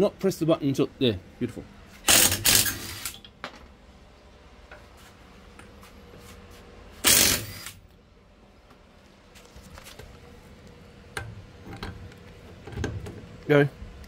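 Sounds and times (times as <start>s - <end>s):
impact wrench hammering: 2.1s - 3.1s, 7.0s - 7.7s.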